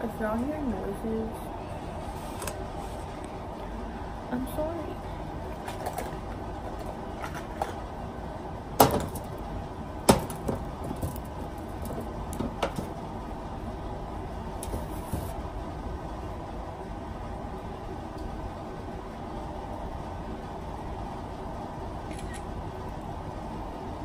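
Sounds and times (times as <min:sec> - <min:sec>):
low rumbling noise: 0:00.0 - 0:24.0
sharp knocks: 0:10.1 - 0:12.9.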